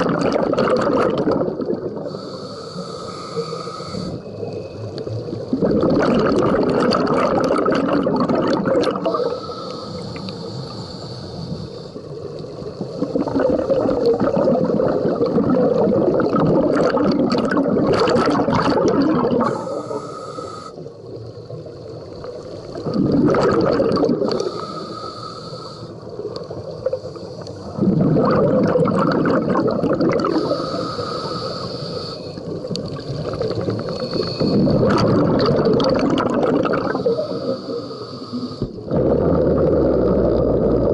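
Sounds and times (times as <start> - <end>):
exhaled bubbles underwater: 0.0 - 2.5, 4.0 - 9.5, 11.4 - 20.2, 20.9 - 24.9, 26.0 - 31.6, 32.2 - 40.9
regulator hiss on inhalation: 2.0 - 5.6, 8.9 - 14.3, 19.3 - 21.0, 24.2 - 27.8, 30.2 - 35.0, 36.6 - 40.7.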